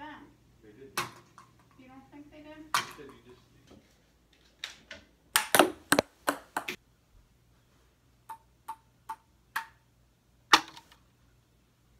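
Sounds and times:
ping pong ball clacking: 5.4 - 6.8, 8.3 - 9.8.

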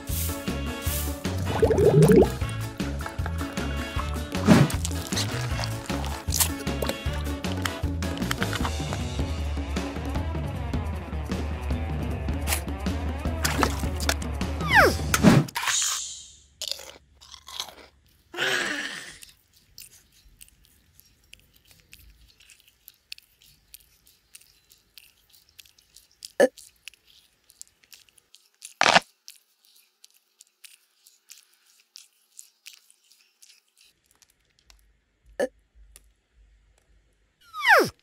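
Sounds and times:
kitten crunching dry kibble: 3.0 - 9.0, 19.2 - 34.8.

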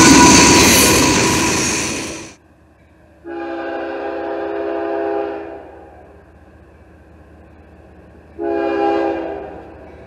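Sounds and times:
low train rumble: 0.0 - 10.0
locomotive air horn: 3.2 - 5.8, 8.4 - 9.6.

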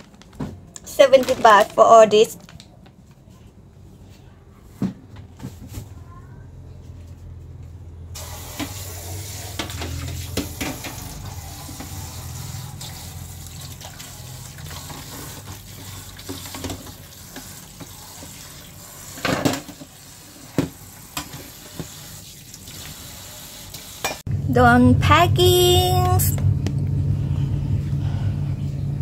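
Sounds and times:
tap water running into sink: 8.2 - 24.2.

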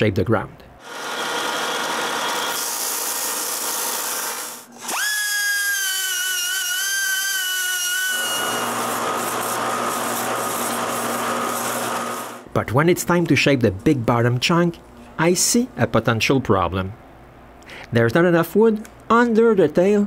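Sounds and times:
rotary tool high-pitched whine: 0.8 - 12.4
sanding drum motor hum: 0.8 - 12.4.

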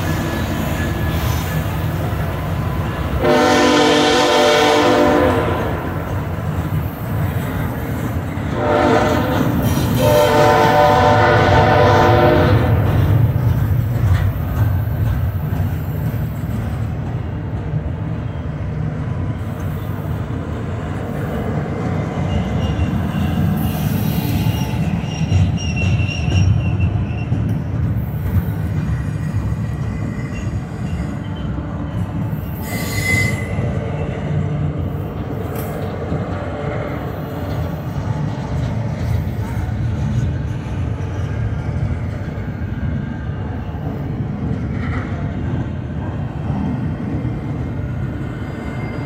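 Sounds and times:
train wheels rumbling on rail: 0.0 - 49.0
high wheel squeal: 22.0 - 27.6, 29.2 - 34.2.

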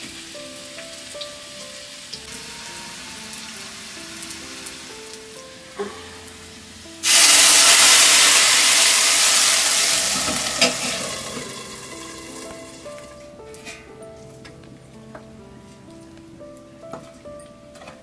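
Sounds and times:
hot oil sizzling: 0.0 - 14.4
metal lid clank: 10.1 - 11.7.

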